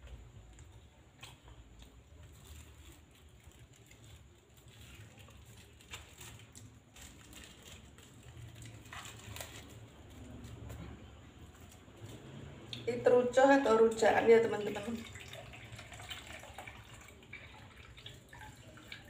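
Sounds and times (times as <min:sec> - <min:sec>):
plastic food bag crinkling: 0:01.4 - 0:12.4.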